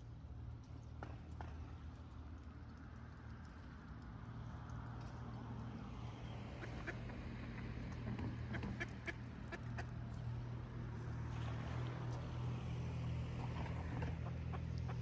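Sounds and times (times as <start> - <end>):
low engine hum: 0.0 - 15.0
wings flapping and splashing: 0.2 - 15.0
ducks quacking softly: 6.6 - 7.6, 8.3 - 10.4.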